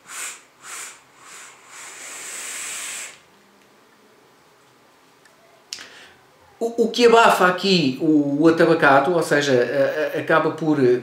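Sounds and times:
vape inhale hiss: 0.0s - 3.3s.

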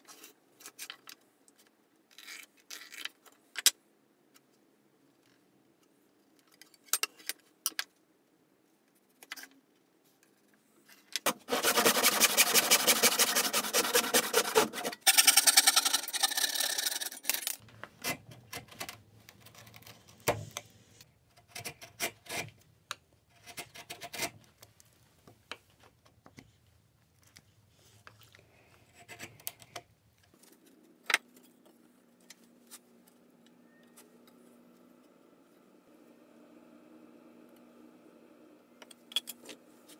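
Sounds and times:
rasping cutting strokes on wood: 11.3s - 15.0s.

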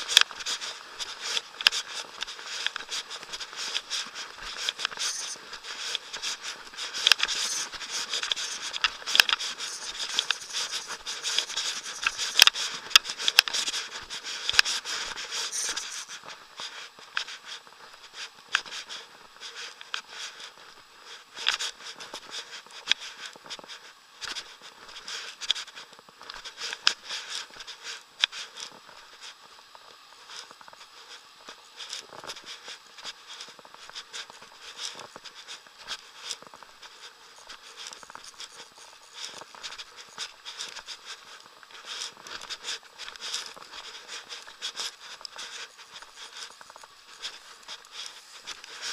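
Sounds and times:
camera handling rustling and scraping: 3.7s - 13.8s, 14.4s - 16.3s.

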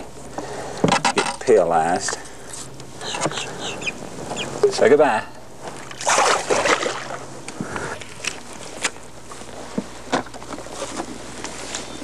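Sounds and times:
fish splashing into water: 5.9s - 7.2s.

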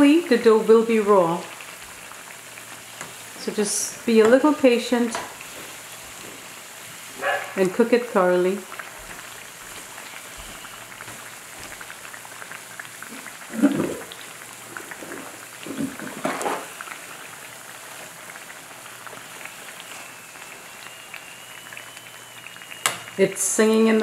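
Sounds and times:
oil bubbling and sizzling: 0.0s - 24.0s
thin high whistle: 10.1s - 11.0s, 19.3s - 23.2s.

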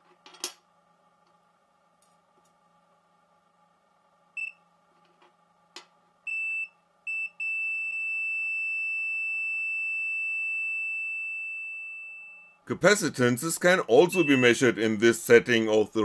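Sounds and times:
multimeter continuity beeping: 6.3s - 12.6s, 14.0s - 14.8s.

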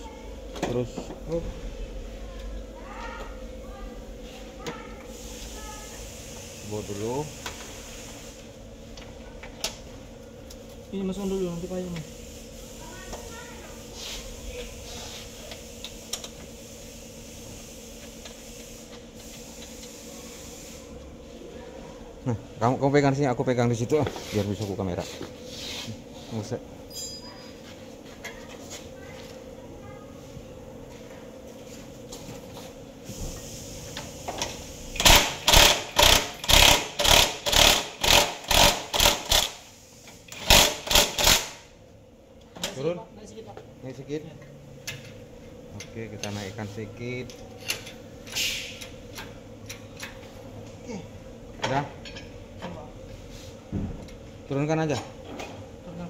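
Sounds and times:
impact wrench driving a bolt: 35.0s - 39.6s, 40.3s - 41.6s.

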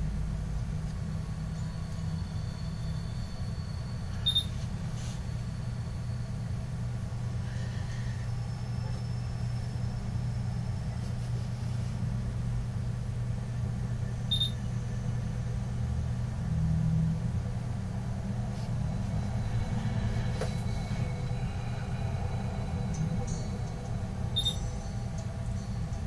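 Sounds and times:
low rumble: 12.0s - 26.0s.

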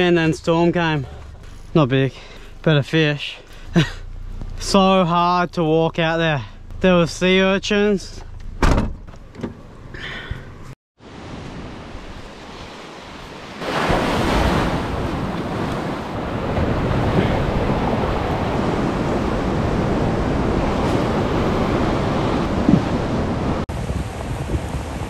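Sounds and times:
ocean surf on rocky shore: 11.0s - 25.0s
wind buffeting microphone: 14.4s - 25.0s.

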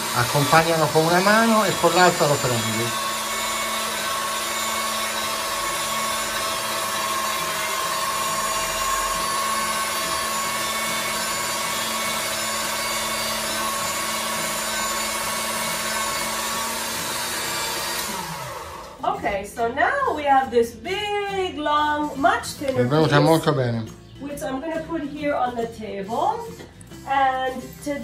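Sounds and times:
pasta roller motor humming: 0.0s - 19.2s.

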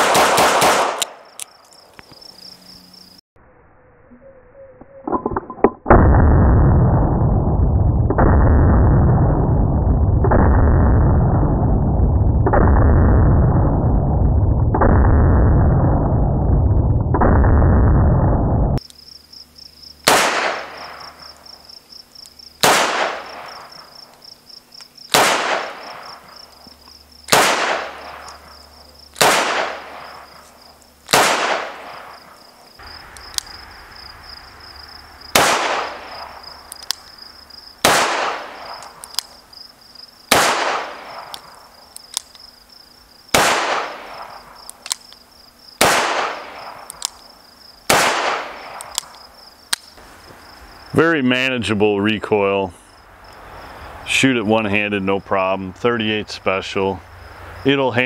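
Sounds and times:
revolver gunshots: 0.0s - 1.3s, 20.0s - 21.4s, 22.6s - 23.9s, 25.1s - 26.5s, 27.2s - 30.4s, 31.0s - 33.7s, 35.3s - 37.0s, 37.8s - 39.3s, 40.3s - 41.6s, 43.3s - 44.6s, 45.8s - 47.0s, 47.8s - 49.1s
high-pitched chirping: 3.6s - 5.3s.

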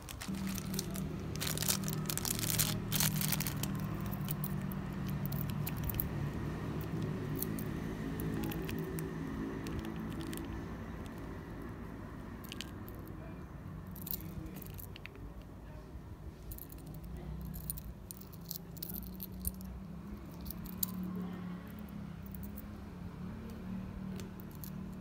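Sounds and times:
low steady hum: 0.0s - 25.0s
metal pin clicking and rattling: 1.5s - 11.2s, 12.4s - 13.1s, 13.9s - 15.5s, 16.5s - 21.1s, 23.5s - 25.0s.

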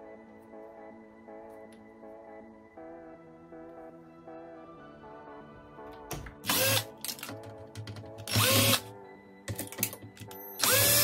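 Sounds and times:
power drill whirring: 6.4s - 6.9s, 8.3s - 8.8s, 10.6s - 11.0s.

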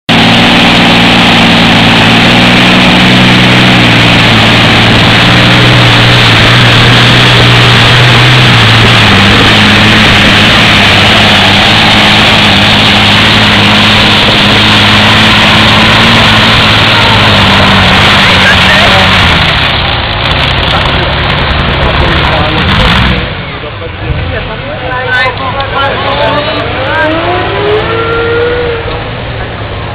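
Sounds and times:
tractor engine at full power: 0.1s - 29.9s.

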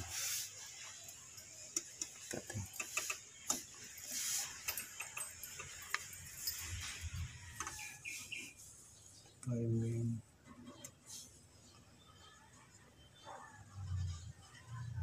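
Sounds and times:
light clicks and taps of tools: 1.7s - 4.0s, 4.6s - 6.7s.

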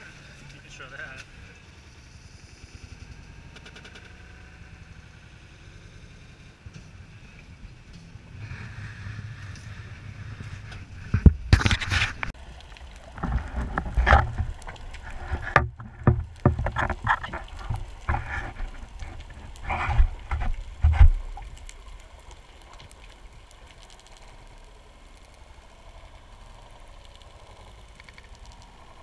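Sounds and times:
water sloshing underwater: 9.5s - 29.0s.

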